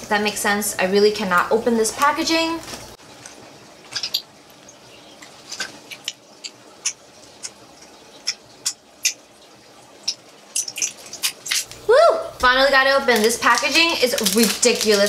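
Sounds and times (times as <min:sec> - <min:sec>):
plastic wrapping tearing and crackling: 0:10.6 - 0:11.9, 0:13.0 - 0:15.0.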